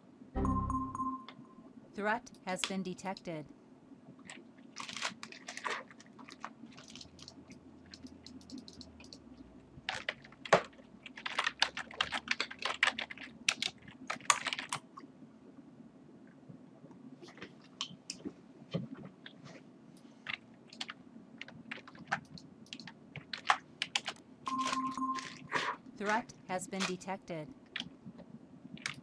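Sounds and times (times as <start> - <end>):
faint steady hum: 0.0 - 29.0
typing on computer keyboard: 6.4 - 9.2, 9.9 - 14.8, 20.3 - 25.4.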